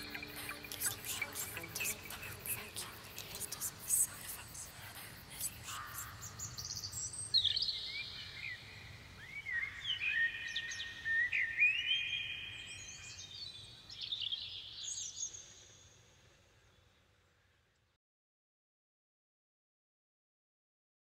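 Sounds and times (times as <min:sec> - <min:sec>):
birds chirping and whistling: 0:00.0 - 0:02.7.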